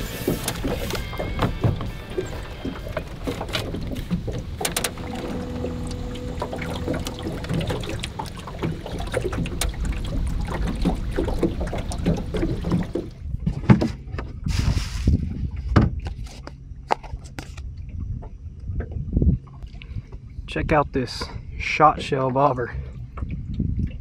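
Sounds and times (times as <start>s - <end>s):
water slapping against boat hull: 0.0s - 14.1s
small knocks on boat: 0.1s - 14.3s, 21.2s - 24.0s.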